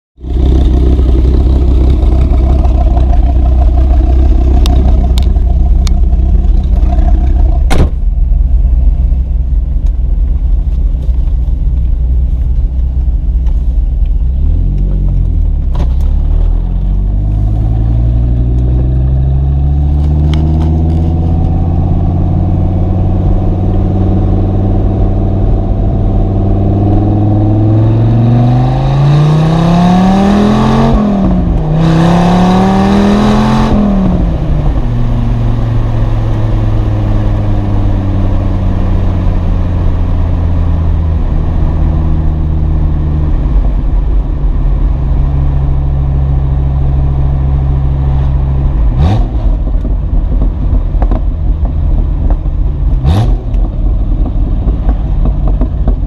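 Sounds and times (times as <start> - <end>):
car engine idling: 0.2 - 28.1, 33.7 - 56.0
car engine revving and accelerating: 0.2 - 56.0
sharp knock: 7.6 - 8.0.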